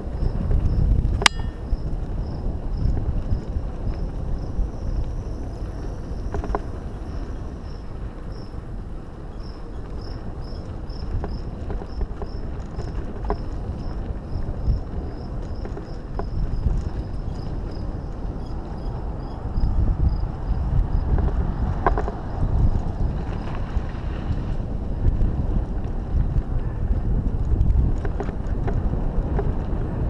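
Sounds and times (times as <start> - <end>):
bike tyres rumbling on dirt: 0.0 - 30.0
bike clicks and rattles: 7.9 - 19.4, 21.0 - 30.0.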